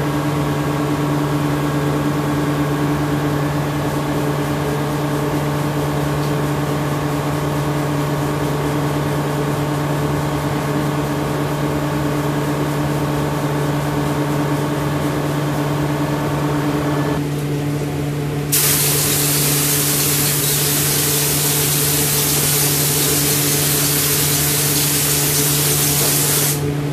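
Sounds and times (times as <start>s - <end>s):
steady machine hum: 0.0s - 26.9s
compressed-air spray gun hissing: 18.5s - 26.7s.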